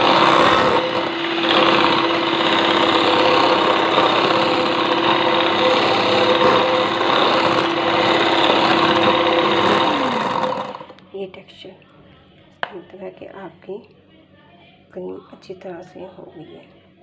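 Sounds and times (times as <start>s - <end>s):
electric hand mixer whipping: 0.0s - 11.0s.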